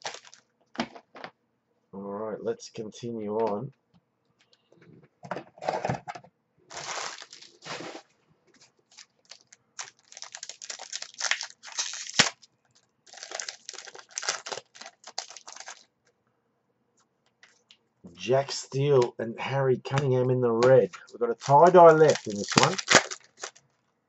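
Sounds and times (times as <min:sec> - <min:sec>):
foil wrappers crinkling and tearing: 0:00.0 - 0:00.4, 0:06.7 - 0:08.0, 0:08.9 - 0:15.9, 0:21.3 - 0:23.6.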